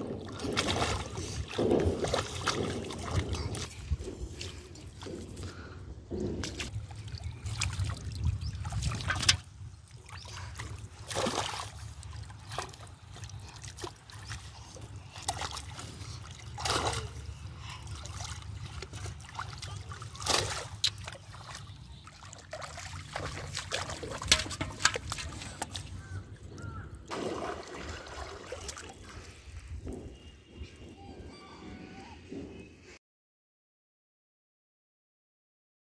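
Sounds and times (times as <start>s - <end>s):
water splashes: 0.0s - 5.2s, 6.4s - 29.8s
river water sloshing and trickling: 0.0s - 5.6s, 6.4s - 30.6s.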